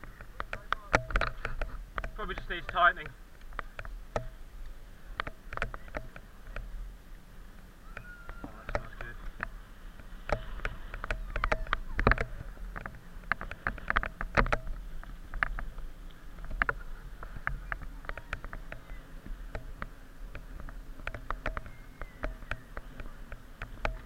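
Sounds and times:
bike parts clicking and knocking: 0.0s - 4.4s, 5.2s - 6.6s, 8.0s - 15.8s, 16.4s - 24.0s
bicycle tyres rumbling on tarmac: 0.0s - 24.0s.

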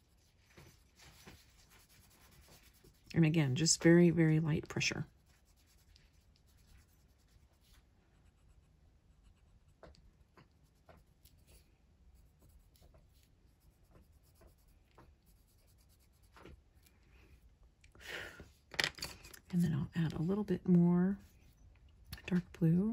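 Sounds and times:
pencil scratching on paper: 0.0s - 16.6s.

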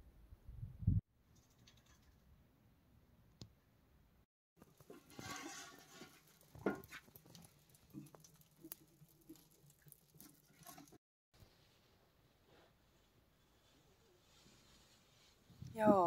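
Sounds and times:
firewood rustling: 4.6s - 16.0s.

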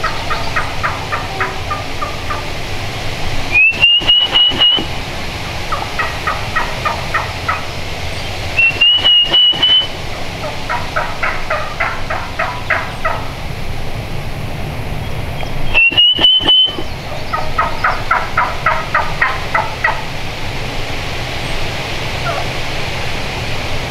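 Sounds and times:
turkey hen yelping: 0.0s - 2.6s, 3.5s - 5.0s, 5.7s - 7.8s, 8.6s - 13.4s, 15.7s - 20.0s, 22.2s - 22.5s
high rising whistle: 3.5s - 5.0s, 8.5s - 10.0s, 15.7s - 17.0s.

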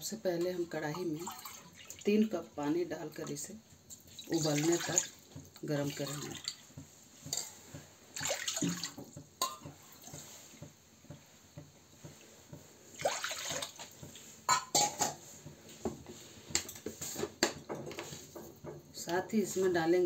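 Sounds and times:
water pouring into a metal pan: 1.1s - 2.1s, 4.0s - 5.2s, 5.8s - 6.6s, 8.2s - 9.0s, 12.9s - 14.0s.

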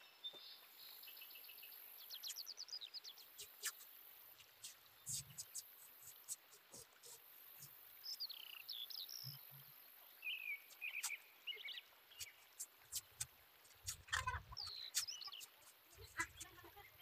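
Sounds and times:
birds chirping: 0.0s - 17.0s
masking tape clicks and rustle: 3.2s - 8.3s, 10.7s - 11.2s, 12.1s - 17.0s.

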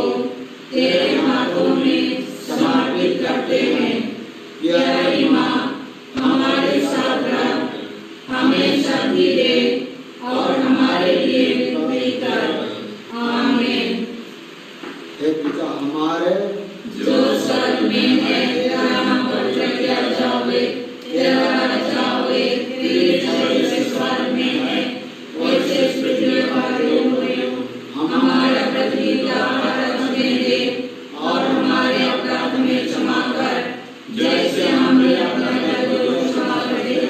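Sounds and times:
voices singing a chant: 0.0s - 14.5s, 16.8s - 37.0s.

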